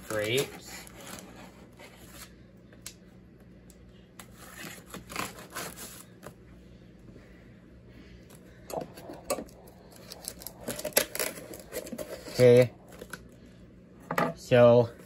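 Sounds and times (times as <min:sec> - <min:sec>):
knife scoring packing tape: 0:04.2 - 0:06.0.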